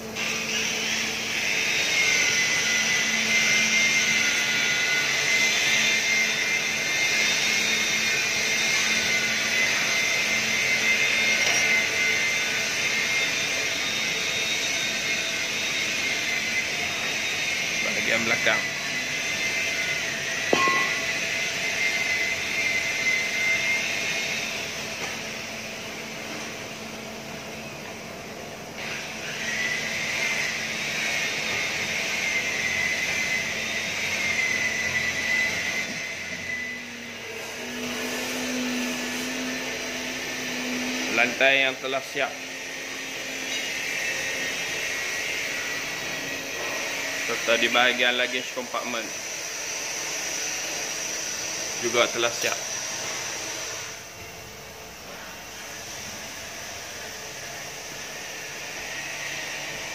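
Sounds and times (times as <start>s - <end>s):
high steady whine: 0.0s - 59.9s
machinery hum and hiss: 0.0s - 59.9s
sharp metal clank: 20.5s - 21.2s.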